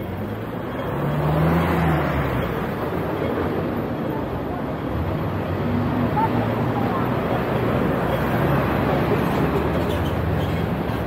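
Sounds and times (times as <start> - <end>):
road noise: 0.0 - 11.0
vehicle passing close by: 0.2 - 2.7.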